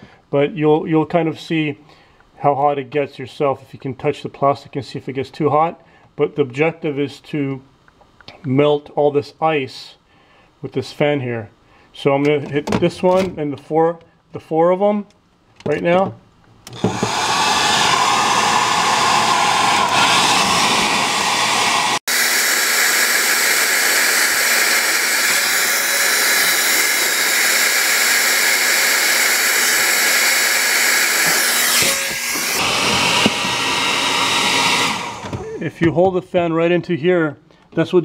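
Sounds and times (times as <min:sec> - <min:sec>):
hair dryer blowing: 0:16.7 - 0:35.6.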